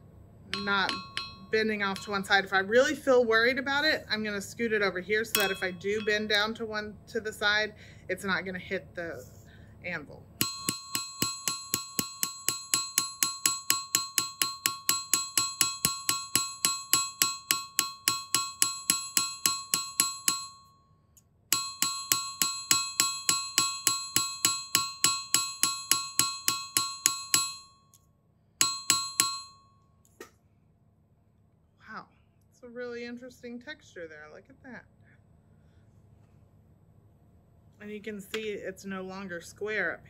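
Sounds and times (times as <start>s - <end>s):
hammer striking metal on anvil: 0.5s - 2.4s, 5.3s - 6.4s, 10.4s - 20.8s, 21.5s - 27.8s, 28.6s - 29.6s.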